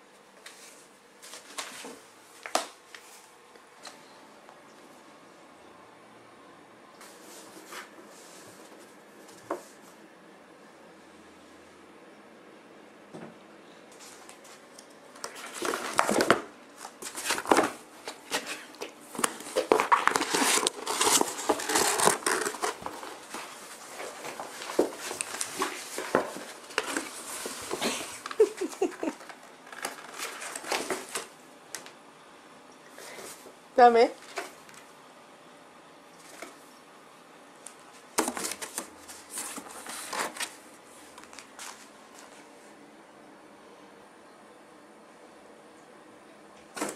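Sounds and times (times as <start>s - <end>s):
cardboard rustling: 15.2s - 31.3s, 38.0s - 42.5s.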